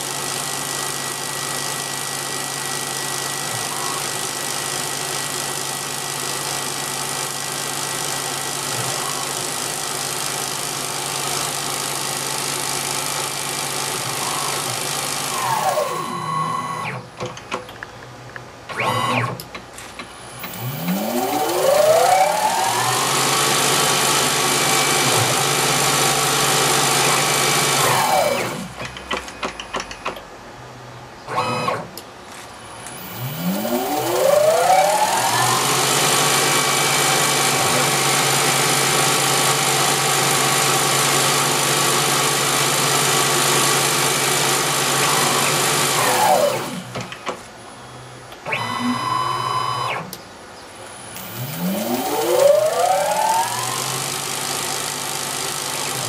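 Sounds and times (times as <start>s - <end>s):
lathe spindle running: 0.0s - 16.2s, 20.2s - 28.8s, 32.7s - 47.0s, 50.9s - 56.0s
motor whine: 0.0s - 17.2s, 20.0s - 29.6s, 31.2s - 50.2s, 50.8s - 56.0s.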